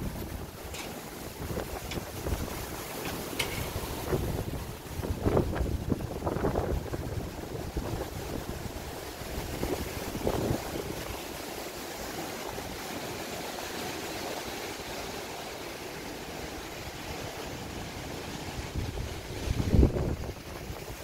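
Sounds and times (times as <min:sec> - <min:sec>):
wind buffeting microphone: 0:00.0 - 0:11.4, 0:16.6 - 0:21.0
strong gusting wind: 0:00.0 - 0:13.1, 0:16.1 - 0:21.0.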